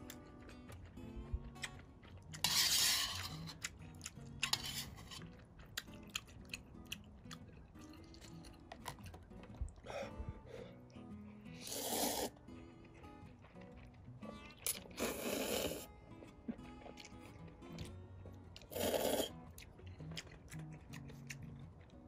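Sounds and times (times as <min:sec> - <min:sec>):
person chewing: 0:00.0 - 0:21.9
slurping noodles: 0:02.4 - 0:03.7, 0:11.5 - 0:12.4, 0:14.6 - 0:15.9, 0:18.6 - 0:19.4.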